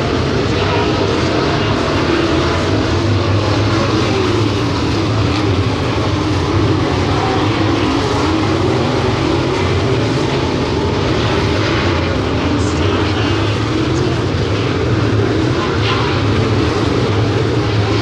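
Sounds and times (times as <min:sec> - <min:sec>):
race car engines droning: 0:00.0 - 0:18.0.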